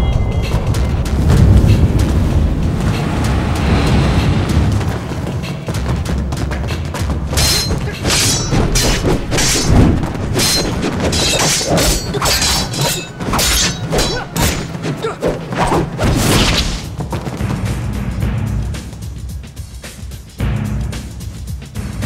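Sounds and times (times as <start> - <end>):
background music: 0.0 - 22.0
weapon swishes: 7.3 - 16.9
struck blows: 7.3 - 17.0.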